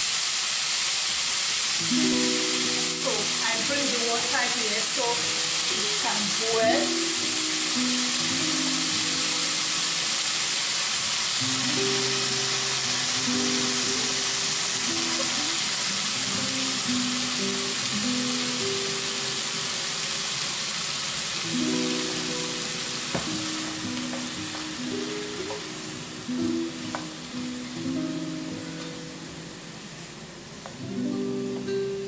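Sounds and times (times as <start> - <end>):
pot of water hissing: 0.0 - 32.0
slow background music: 1.8 - 32.0.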